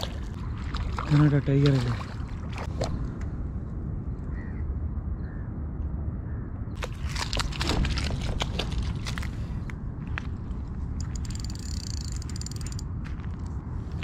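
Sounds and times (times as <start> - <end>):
fish splashing in water: 6.8 - 9.3.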